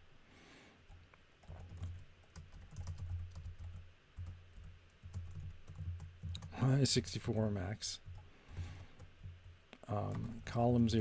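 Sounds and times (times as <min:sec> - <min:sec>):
computer keyboard typing: 0:00.9 - 0:06.6, 0:08.0 - 0:09.5.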